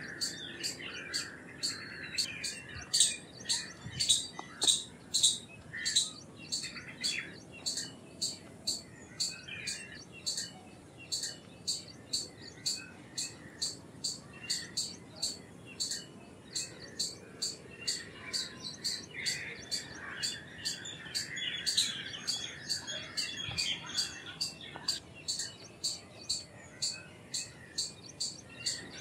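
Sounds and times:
soft twittering: 0:00.0 - 0:29.0
squirrel chirping: 0:00.0 - 0:29.0.

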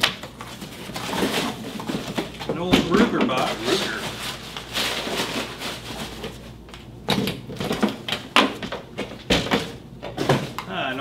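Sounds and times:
cardboard and paper rustling: 0:00.0 - 0:06.7.

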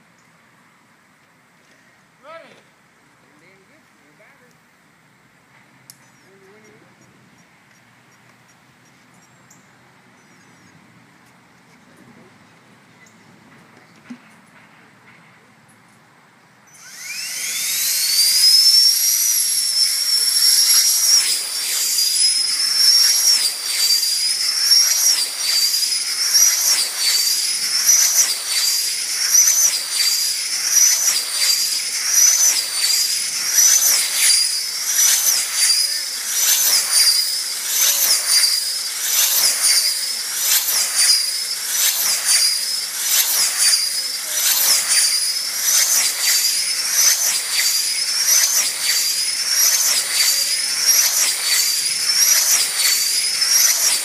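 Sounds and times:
electric fan whine passing: 0:16.2 - 0:54.0.

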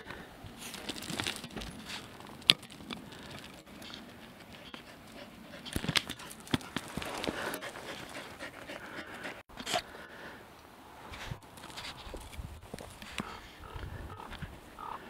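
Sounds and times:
heavy panting breaths: 0:03.1 - 0:10.4
footsteps crunching on stony path: 0:05.7 - 0:09.0.

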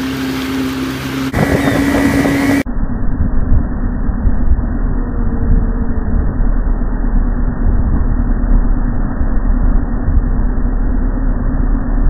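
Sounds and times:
water rushing: 0:00.0 - 0:02.6
motorboat engine running: 0:00.0 - 0:12.0
wind rumble on microphone: 0:01.3 - 0:12.0.

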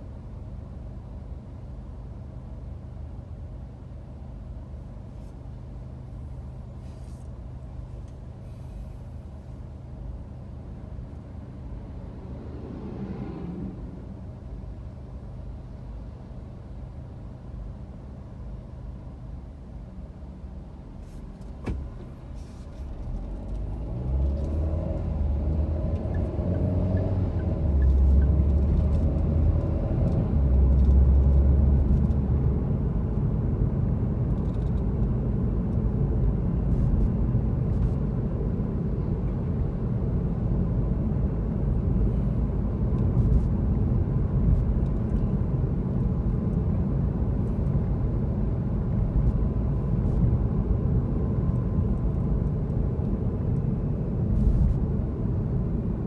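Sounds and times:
road noise: 0:00.0 - 0:56.0
car engine accelerating: 0:11.4 - 0:14.8, 0:22.9 - 0:32.5.

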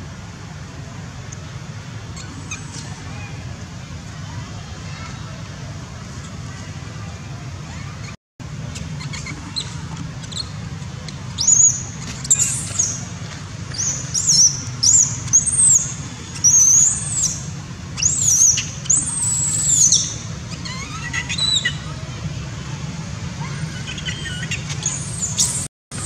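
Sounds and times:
monkey squealing: 0:02.2 - 0:03.0, 0:08.9 - 0:10.5, 0:18.0 - 0:21.9, 0:23.4 - 0:25.7.

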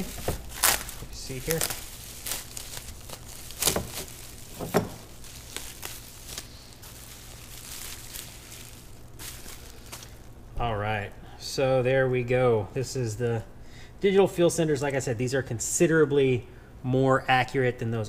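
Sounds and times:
bubble wrap crinkling: 0:00.0 - 0:10.4
sharp plastic crackles: 0:00.0 - 0:10.4.

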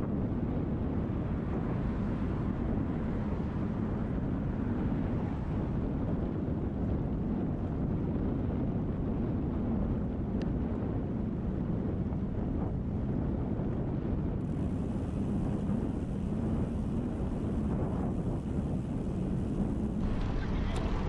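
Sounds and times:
wind buffeting microphone: 0:00.0 - 0:21.0
road noise: 0:00.7 - 0:07.6, 0:14.4 - 0:21.0.

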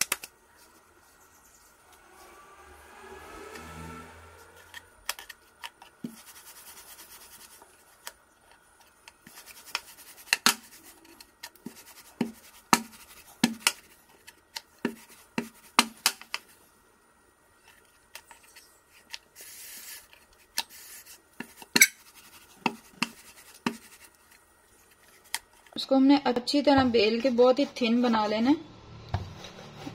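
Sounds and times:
rubbing and scraping on dough: 0:04.4 - 0:16.7, 0:17.8 - 0:28.6, 0:29.2 - 0:29.9.

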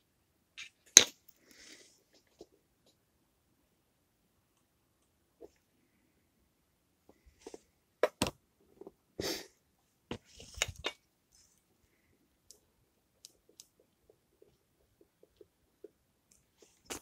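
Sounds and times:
small objects clicking and knocking: 0:10.4 - 0:11.1.

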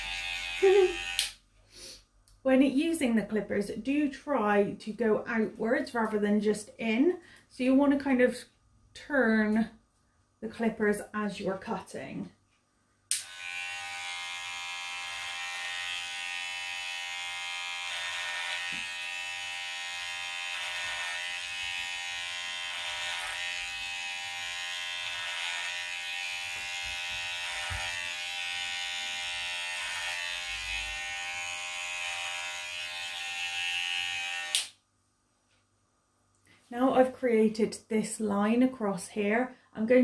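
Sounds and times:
electric hair clippers buzzing: 0:00.0 - 0:01.4, 0:13.1 - 0:34.8.

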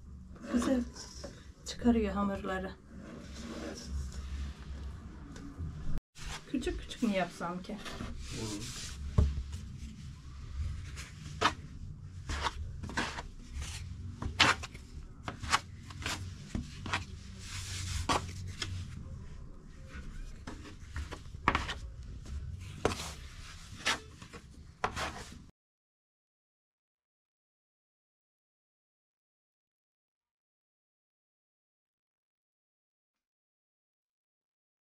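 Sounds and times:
hands kneading dough: 0:07.0 - 0:25.5.

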